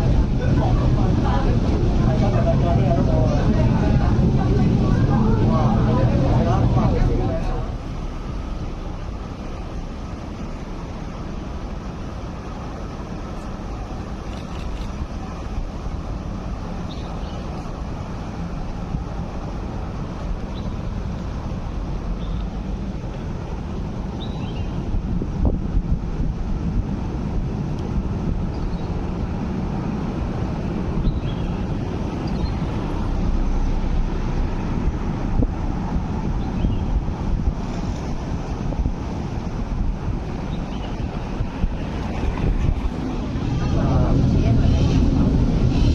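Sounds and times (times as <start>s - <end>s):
funicular tramcar rumbling on rails: 0.0s - 45.9s.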